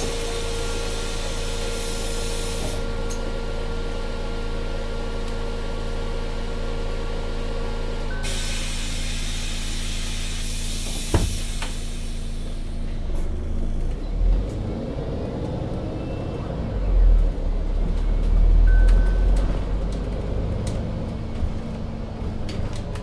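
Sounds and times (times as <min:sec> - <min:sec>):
hiss: 0:00.0 - 0:02.8, 0:08.2 - 0:12.8
bus diesel engine running: 0:00.0 - 0:23.0.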